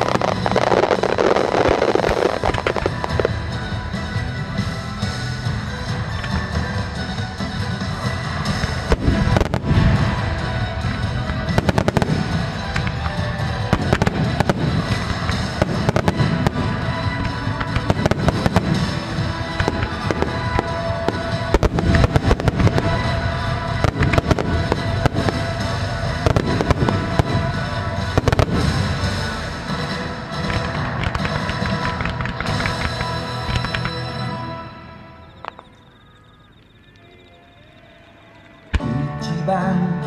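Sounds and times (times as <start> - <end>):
music playing: 0.0 - 40.0
firework shells bursting: 8.5 - 34.2.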